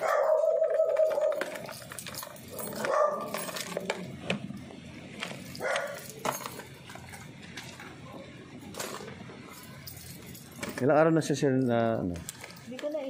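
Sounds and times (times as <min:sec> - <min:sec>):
dog barking: 0:00.0 - 0:01.5, 0:02.5 - 0:03.5, 0:05.6 - 0:06.0.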